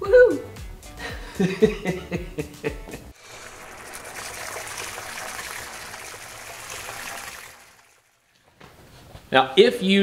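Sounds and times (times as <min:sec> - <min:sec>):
liquid splashing and pouring: 0:03.2 - 0:08.4.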